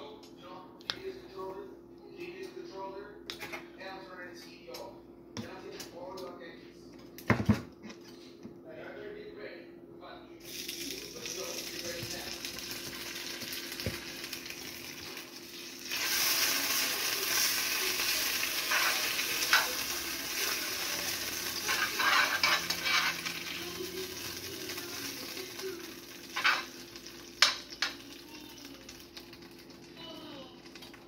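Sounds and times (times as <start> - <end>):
butter sizzling in frying pan: 10.4 - 31.0
spoon scraping against pan: 18.6 - 20.6, 21.4 - 23.6, 26.3 - 26.8.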